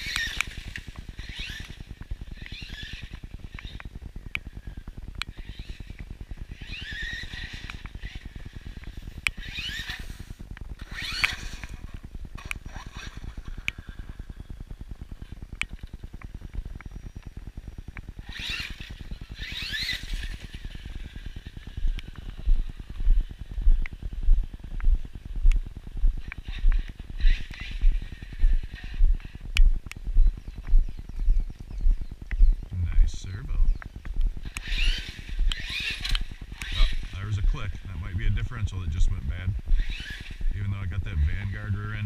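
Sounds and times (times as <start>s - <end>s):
electric motor whining: 0.0s - 42.0s
clicks: 31.6s - 32.8s.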